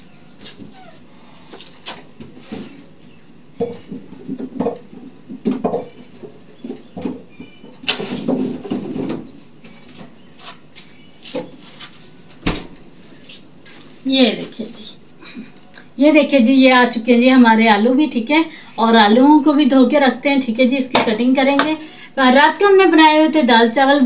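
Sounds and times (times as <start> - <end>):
rustling and scraping: 0.0 - 15.0
refrigerator door thump: 12.4 - 12.8.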